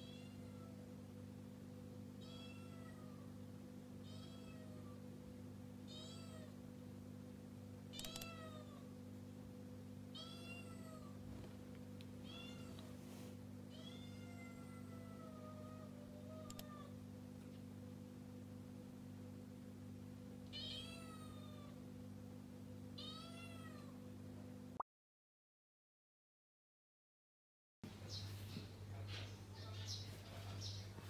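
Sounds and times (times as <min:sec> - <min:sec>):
steady low hum: 0:00.0 - 0:24.8
cat meowing: 0:02.2 - 0:03.3, 0:04.0 - 0:05.0, 0:05.9 - 0:06.6, 0:10.2 - 0:11.2, 0:12.2 - 0:12.8, 0:13.7 - 0:16.9, 0:20.5 - 0:21.8, 0:23.0 - 0:23.9.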